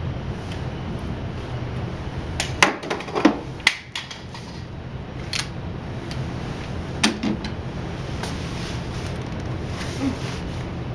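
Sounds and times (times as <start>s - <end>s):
low steady hum: 0.0s - 10.9s.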